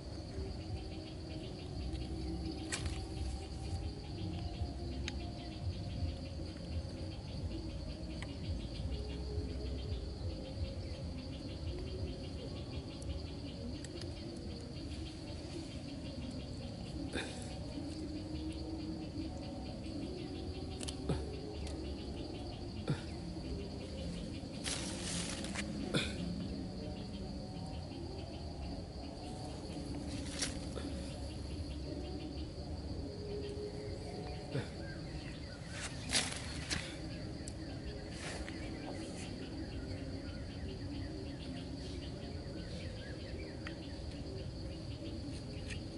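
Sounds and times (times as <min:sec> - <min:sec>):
high-pitched insect drone: 0:00.0 - 0:45.9
pulsing cricket chirp: 0:00.0 - 0:45.9
clicks and rustles of string: 0:35.7 - 0:39.0.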